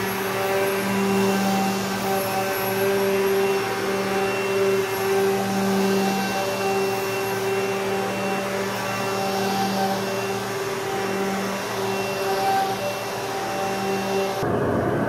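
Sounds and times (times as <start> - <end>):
dust collector air rush: 0.0 - 15.0
wood router humming: 0.0 - 15.0.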